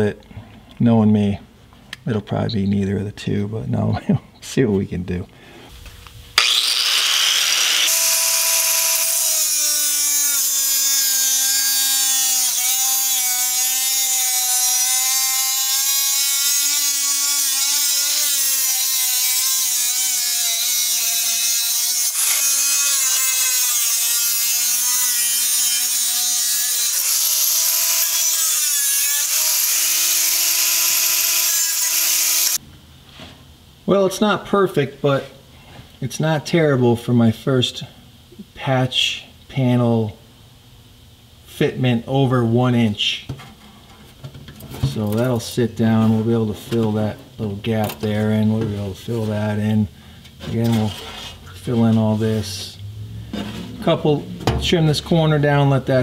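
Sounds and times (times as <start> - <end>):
angle grinder cutting sheet metal: 6.4 - 32.6.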